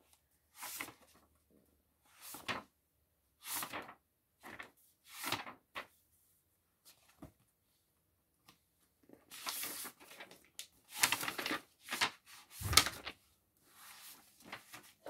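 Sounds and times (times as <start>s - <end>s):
book pages turning: 0.6s - 1.2s, 9.2s - 13.2s.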